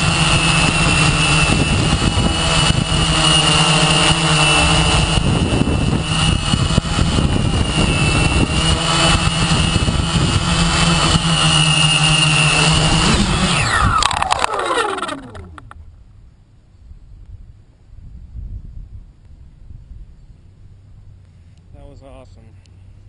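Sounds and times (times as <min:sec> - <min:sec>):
quadcopter propellers buzzing whine: 0:00.0 - 0:16.1.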